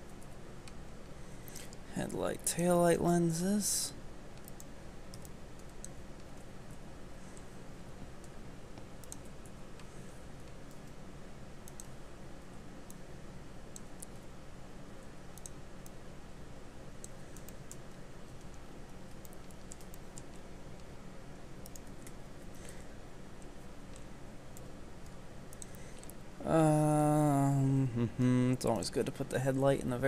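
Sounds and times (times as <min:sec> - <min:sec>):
low background hum: 0:00.0 - 0:30.0
mouse and keyboard clicks: 0:08.2 - 0:10.9.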